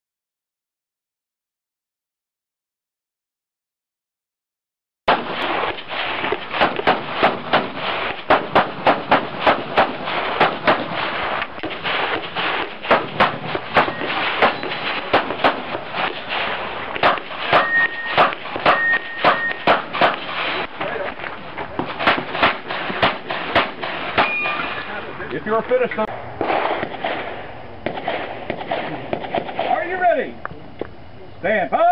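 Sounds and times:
pistol shots: 0:05.1 - 0:21.2, 0:21.8 - 0:25.0, 0:26.1 - 0:30.2.

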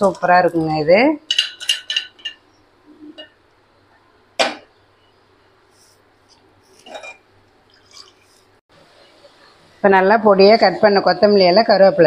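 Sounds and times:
metal cookware clanking: 0:00.0 - 0:03.4, 0:06.8 - 0:07.3.

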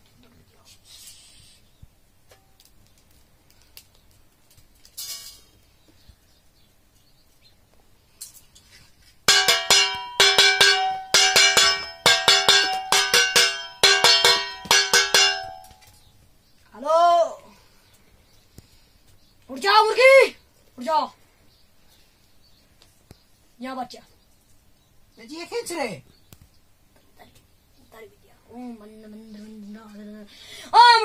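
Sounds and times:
steel plate clanging: 0:05.0 - 0:05.5, 0:09.3 - 0:15.9.

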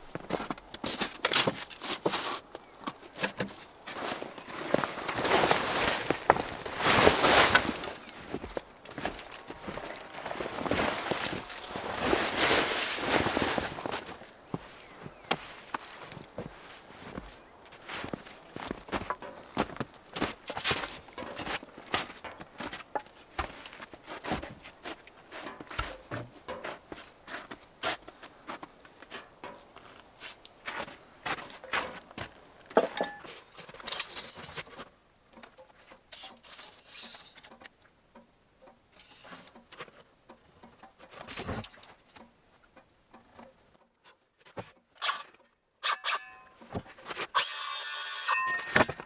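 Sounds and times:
footsteps in snow: 0:00.0 - 0:32.4.

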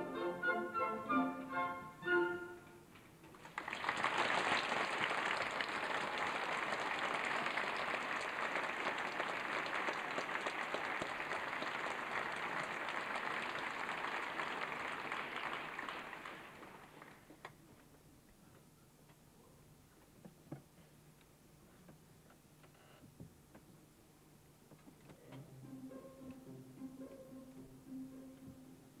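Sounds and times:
orchestra chord: 0:00.0 - 0:02.8, 0:25.4 - 0:29.0
audience applause: 0:03.3 - 0:17.4.

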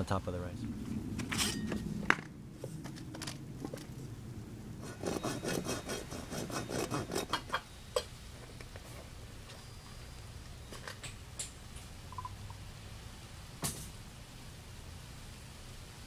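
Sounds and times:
hand saw rasping through plastic pipe: 0:04.8 - 0:07.5.

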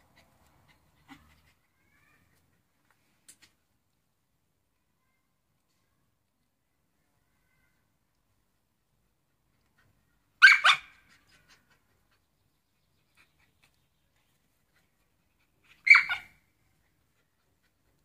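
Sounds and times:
dog barking: 0:10.4 - 0:11.0, 0:15.8 - 0:16.3.

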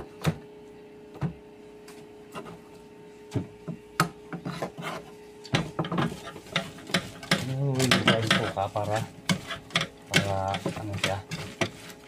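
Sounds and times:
knife scraping a board: 0:04.4 - 0:05.2, 0:06.0 - 0:12.0.

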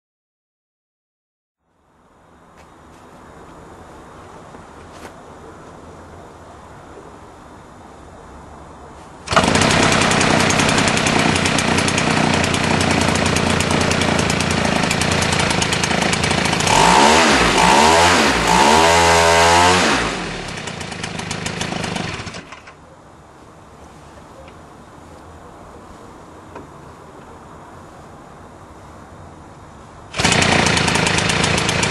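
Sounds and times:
model aircraft engine running: 0:09.3 - 0:18.9, 0:30.2 - 0:31.9.

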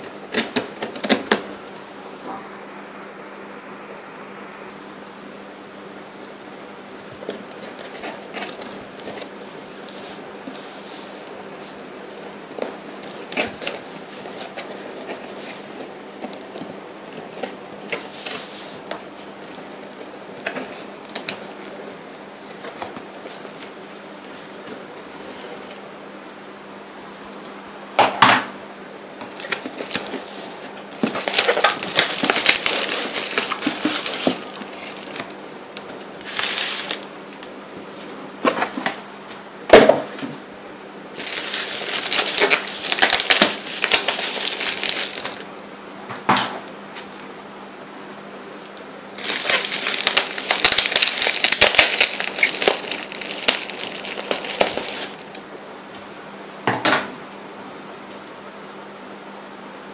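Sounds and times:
bubble wrap crinkling: 0:07.2 - 0:24.8, 0:29.2 - 0:37.5, 0:41.2 - 0:45.6, 0:48.6 - 0:55.4.

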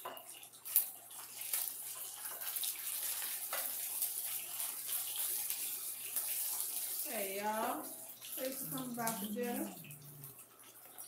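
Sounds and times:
food sizzling in hot oil: 0:00.0 - 0:11.0
spatula clicking on pan: 0:03.2 - 0:03.8.

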